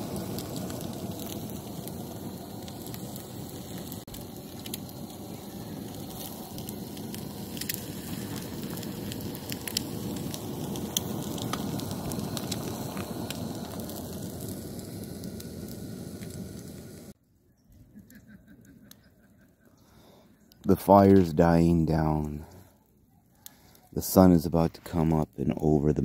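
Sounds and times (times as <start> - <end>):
food sizzling in pans: 0.0 - 17.2.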